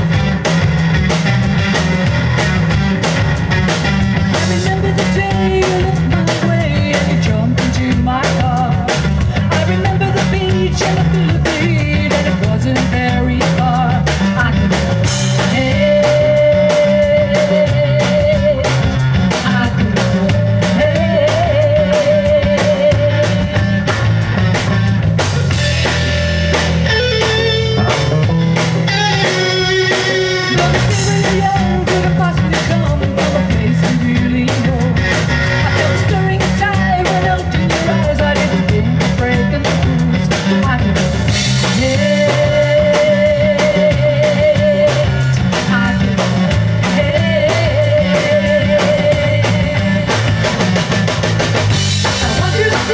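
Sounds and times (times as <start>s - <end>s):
electric guitar lead notes: 0.0s - 52.9s
live rock band playing: 0.0s - 52.9s.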